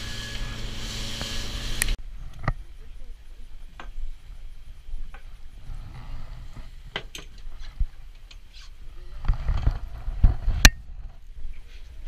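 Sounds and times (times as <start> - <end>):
wind rumble on microphone: 8.9 - 12.0.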